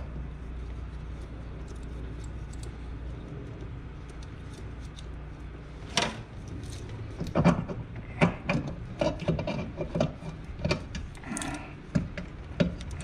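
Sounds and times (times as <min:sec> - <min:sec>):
steady low hum: 0:00.0 - 0:13.0
metal parts clicking: 0:06.0 - 0:13.0.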